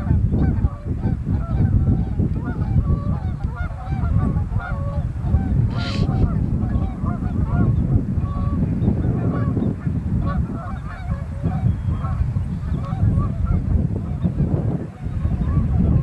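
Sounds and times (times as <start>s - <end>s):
geese honking: 0.1s - 8.6s, 10.2s - 14.3s.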